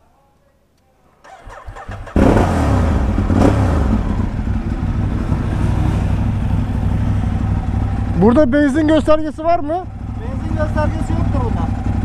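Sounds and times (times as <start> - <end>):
engine revving: 1.3 - 8.4
motorcycle engine idling: 1.3 - 12.0.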